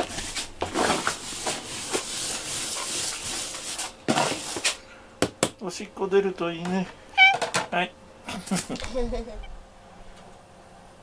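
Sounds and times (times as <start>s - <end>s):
brush rubbing through fur: 0.0s - 4.7s.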